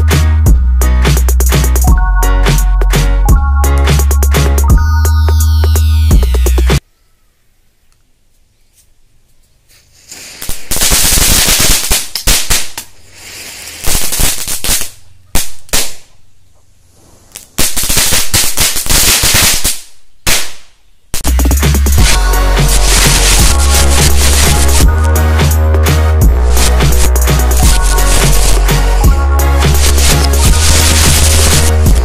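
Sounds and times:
firecrackers crackling and hissing: 9.7s - 16.2s, 16.9s - 32.0s.

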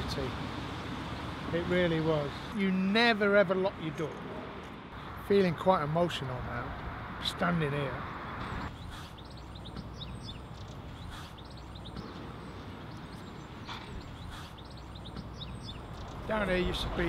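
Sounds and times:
small birds chirping: 0.0s - 17.0s.

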